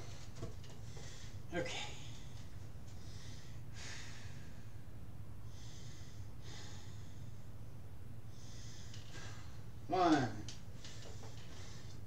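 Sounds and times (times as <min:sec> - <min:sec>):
steady low hum: 0:00.0 - 0:12.0
man breathing hard: 0:00.8 - 0:02.2, 0:02.9 - 0:07.6, 0:08.2 - 0:09.7.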